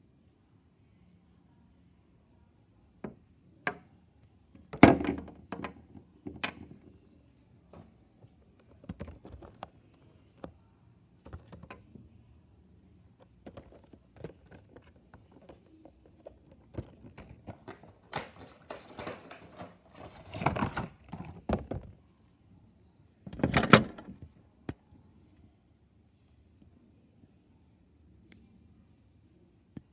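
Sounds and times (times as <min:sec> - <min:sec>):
plastic packaging rustling: 0:13.5 - 0:21.5.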